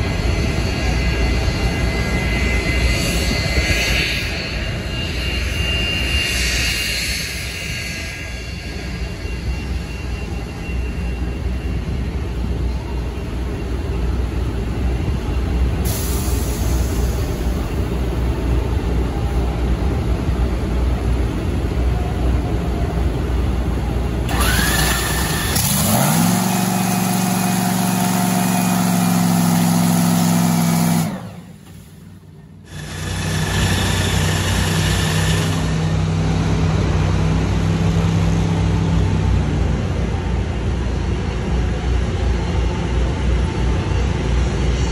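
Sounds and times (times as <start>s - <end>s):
drag racing engines rumbling: 0.0s - 44.6s
engine note revving high: 24.3s - 31.6s.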